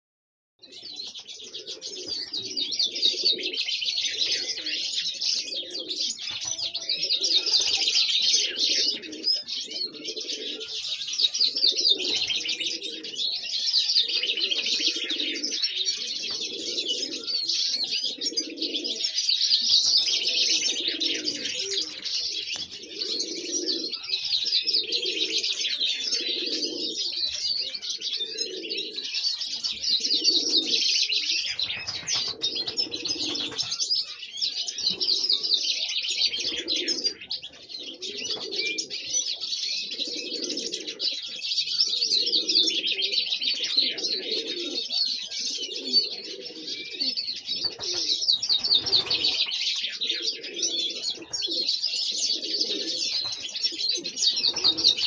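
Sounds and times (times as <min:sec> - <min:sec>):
songbirds chirping and singing: 0:00.6 - 0:55.0.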